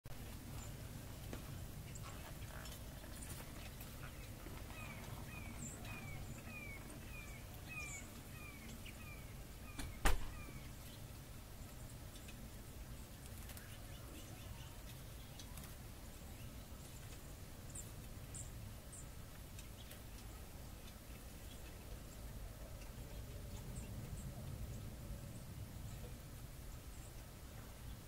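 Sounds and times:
low steady rumble: 0:00.1 - 0:28.0
bird calling falling notes: 0:04.7 - 0:10.8.

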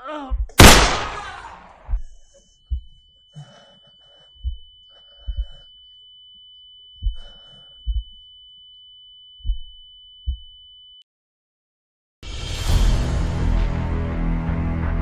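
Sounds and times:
heartbeat thumps: 0:00.3 - 0:00.6, 0:01.8 - 0:03.0, 0:04.4 - 0:05.7, 0:07.0 - 0:08.2, 0:09.4 - 0:10.5
high-pitched ringing tone: 0:01.8 - 0:11.0
gasping breaths: 0:03.3 - 0:05.8.

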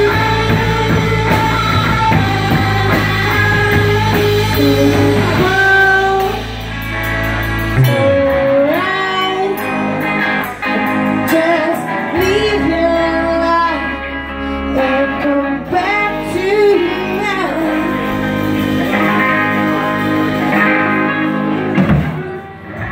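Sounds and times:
women singing: 0:00.0 - 0:06.5, 0:07.8 - 0:10.3, 0:14.7 - 0:18.1
drum kit: 0:00.0 - 0:13.1, 0:15.7 - 0:22.9
bass guitar: 0:00.0 - 0:22.9
electric guitars: 0:00.0 - 0:22.9.

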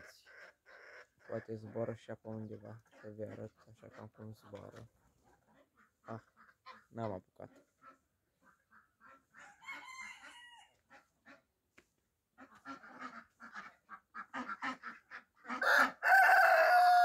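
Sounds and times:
chickens calling: 0:00.0 - 0:11.6, 0:12.3 - 0:17.0
rooster crowing: 0:09.6 - 0:10.7, 0:15.6 - 0:17.0.

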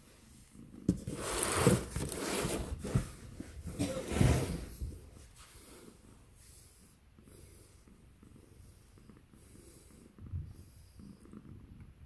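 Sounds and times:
cat purring: 0:05.8 - 0:12.0.

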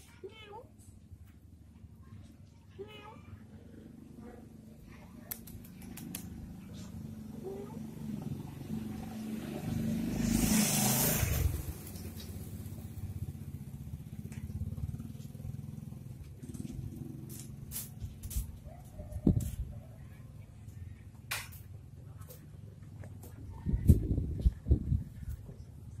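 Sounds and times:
vehicle engine rumbling passing by: 0:03.4 - 0:21.2.

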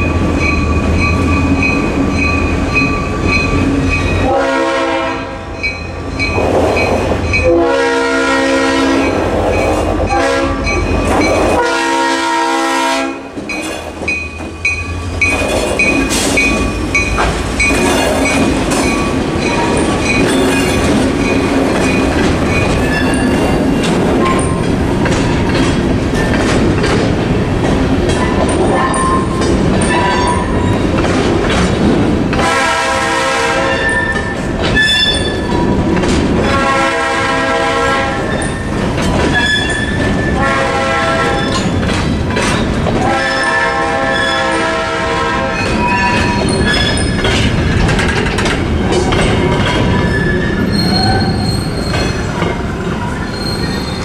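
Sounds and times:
crossing bell dinging: 0:00.0 - 0:11.9, 0:13.4 - 0:24.8, 0:28.1 - 0:31.0, 0:33.6 - 0:35.8, 0:38.2 - 0:40.5, 0:41.3 - 0:43.6
locomotive rumbling past: 0:00.0 - 0:54.0
locomotive horn blasts: 0:04.2 - 0:05.5, 0:07.4 - 0:09.2, 0:10.1 - 0:10.8, 0:11.4 - 0:13.3, 0:32.4 - 0:34.1, 0:36.4 - 0:38.4, 0:40.3 - 0:41.6, 0:43.0 - 0:45.8
freight cars clattering: 0:13.4 - 0:32.5, 0:41.4 - 0:43.2, 0:45.6 - 0:54.0.

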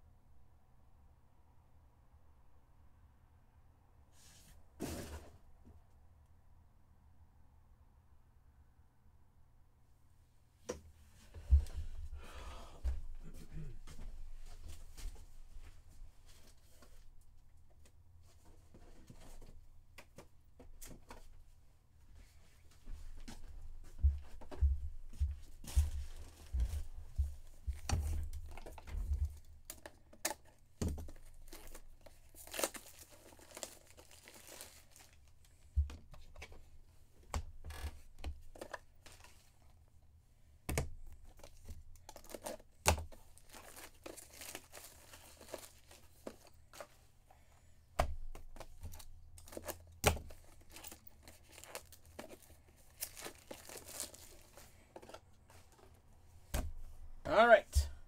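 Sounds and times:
plastic packaging crinkling and tearing: 0:31.1 - 0:35.3, 0:41.3 - 0:46.9, 0:48.9 - 0:55.2.

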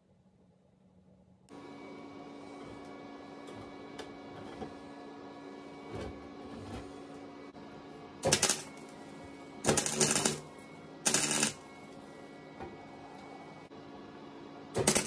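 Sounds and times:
welder crackling: 0:08.2 - 0:11.7, 0:14.8 - 0:15.0.

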